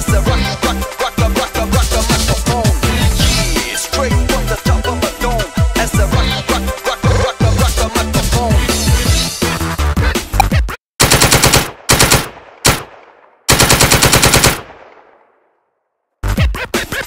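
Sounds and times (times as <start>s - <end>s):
hip hop music: 0.0s - 10.7s
machine-gun fire: 11.0s - 15.3s.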